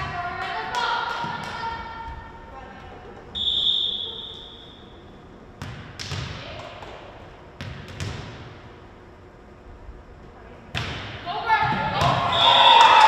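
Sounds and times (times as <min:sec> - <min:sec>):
volleyball bouncing on wooden floor: 0:00.0 - 0:02.2, 0:05.6 - 0:08.6, 0:10.7 - 0:12.3
referee's whistle blast: 0:03.4 - 0:04.9, 0:12.2 - 0:13.0.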